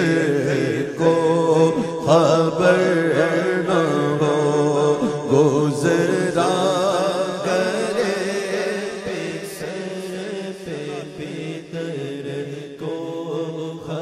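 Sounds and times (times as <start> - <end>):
man singing unaccompanied: 0.0 - 14.0.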